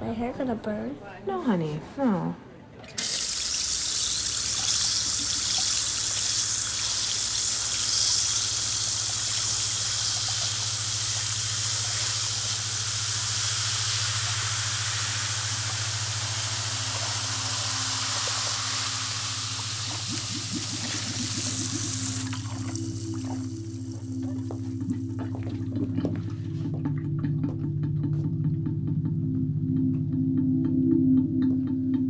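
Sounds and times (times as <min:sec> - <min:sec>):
water running into basin: 0:03.0 - 0:28.1
low hum: 0:09.1 - 0:32.0.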